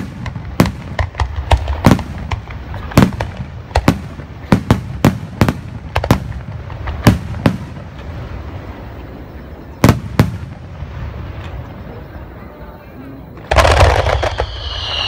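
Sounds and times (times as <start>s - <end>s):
firework shells bursting: 13.4s - 15.0s
low rumble: 13.9s - 15.0s.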